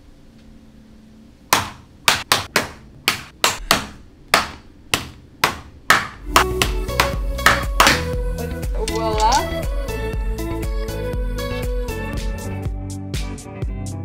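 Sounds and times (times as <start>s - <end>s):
knife chopping coconut: 1.5s - 8.1s.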